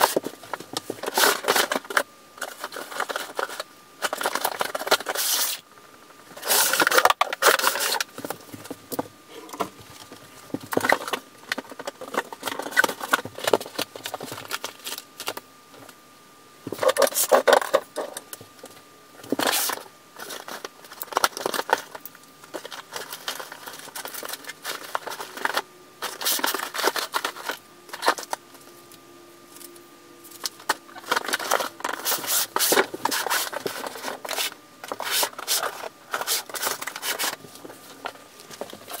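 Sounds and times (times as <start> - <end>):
rustling and scraping of cardboard: 0.0 - 5.6, 19.2 - 28.7, 30.6 - 39.0.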